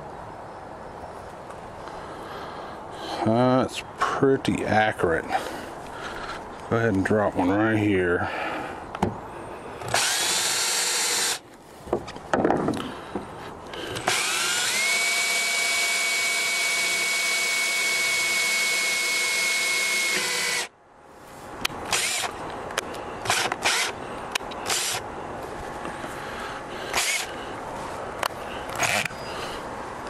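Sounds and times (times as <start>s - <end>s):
cordless drill whining: 9.9s - 11.4s, 13.9s - 20.7s, 21.9s - 22.3s, 23.2s - 24.0s, 24.6s - 25.0s, 26.9s - 27.3s, 28.8s - 29.3s.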